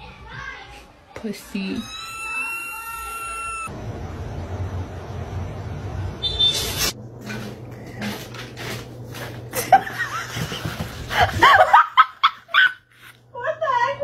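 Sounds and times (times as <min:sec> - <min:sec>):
person laughing: 0:09.5 - 0:13.1.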